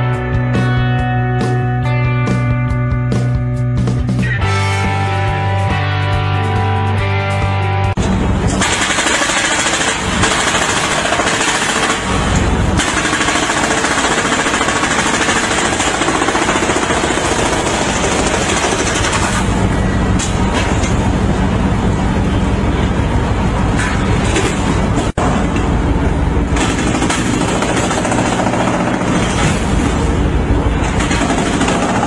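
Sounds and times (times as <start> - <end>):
rock music with guitar: 0.0 - 8.0
hydraulic breaker hammering concrete: 8.5 - 19.5, 26.6 - 30.0, 30.8 - 32.0.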